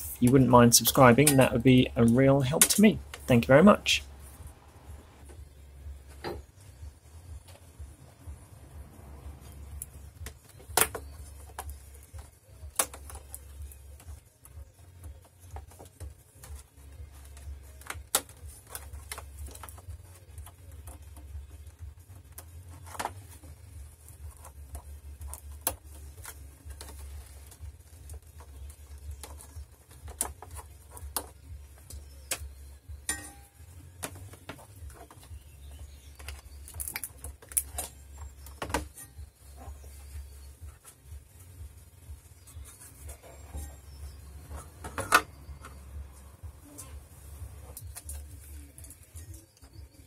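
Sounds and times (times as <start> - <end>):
hands handling cables clicking: 9.7 - 33.2, 36.1 - 39.2.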